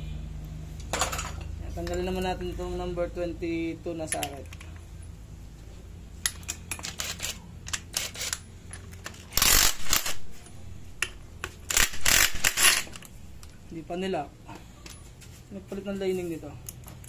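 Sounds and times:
metallic clicks and taps: 0:04.0 - 0:04.9
impact wrench hammering: 0:11.0 - 0:13.0.

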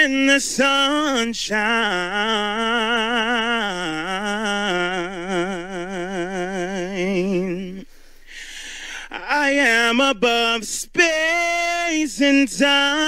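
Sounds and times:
man singing a long note: 0:00.0 - 0:07.8.

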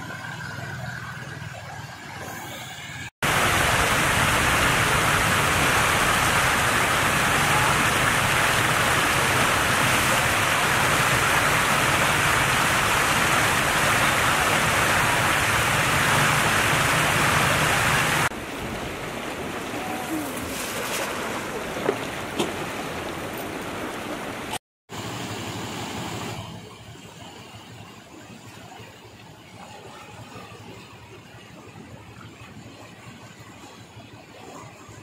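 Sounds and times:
floodwater rushing: 0:01.6 - 0:28.8.

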